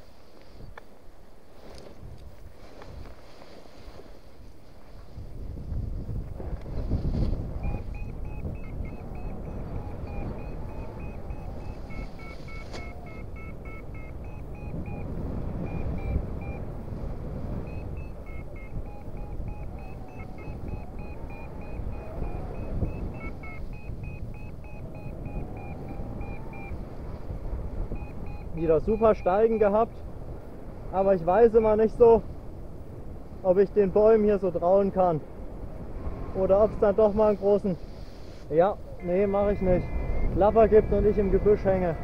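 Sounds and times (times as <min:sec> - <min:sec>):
wind rushing over microphone: 0:00.0 - 0:42.0
variometer beeping: 0:07.4 - 0:29.9, 0:38.8 - 0:42.0.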